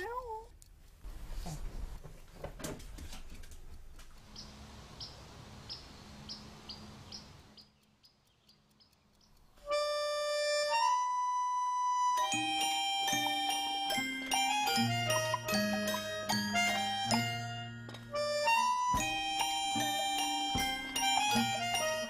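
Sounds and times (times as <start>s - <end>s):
music with long held notes: 9.6s - 22.0s.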